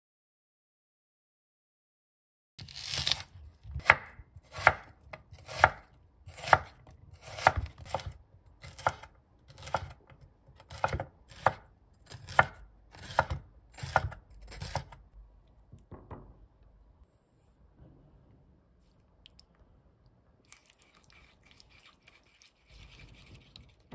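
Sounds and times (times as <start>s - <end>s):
knife knocking on wooden board: 15.7s - 16.4s.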